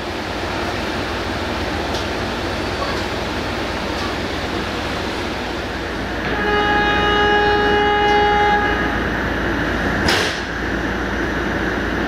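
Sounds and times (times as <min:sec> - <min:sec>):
train rumble: 0:00.0 - 0:12.0
train horn: 0:06.2 - 0:09.2.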